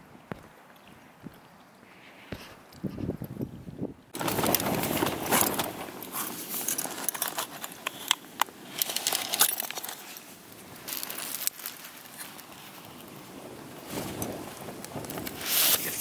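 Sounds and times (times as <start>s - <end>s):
camping kit rustling: 4.1s - 16.0s.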